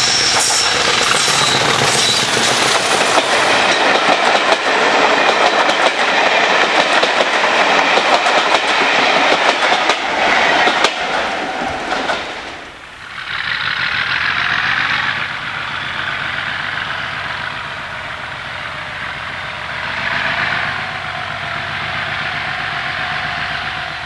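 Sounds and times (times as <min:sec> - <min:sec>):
diesel locomotive engine beat: 0:00.0 - 0:24.0
hissing roar: 0:10.0 - 0:24.0.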